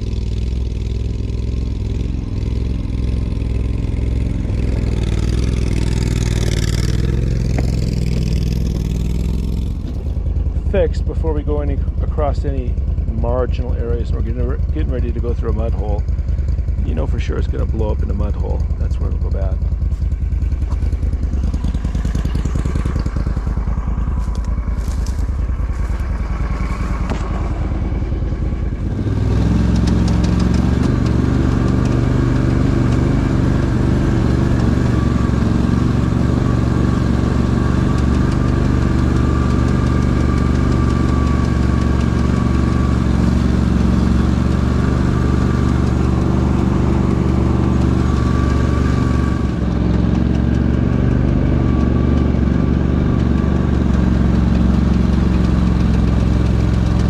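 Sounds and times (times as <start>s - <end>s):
vehicle engine running: 0.0s - 57.0s.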